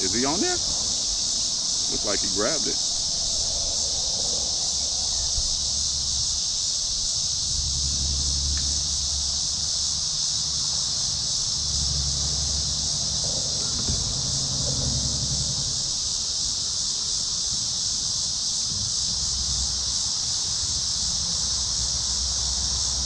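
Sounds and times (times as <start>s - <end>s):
insects chirping: 0.0s - 23.0s
low hum: 2.9s - 15.9s.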